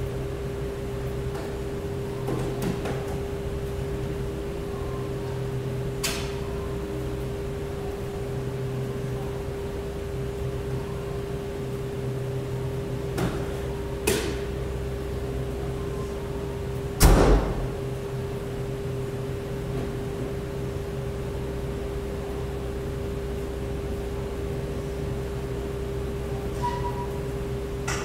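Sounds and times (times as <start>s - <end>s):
machine hum: 0.0s - 28.0s
heavy deep thud: 17.0s - 17.8s.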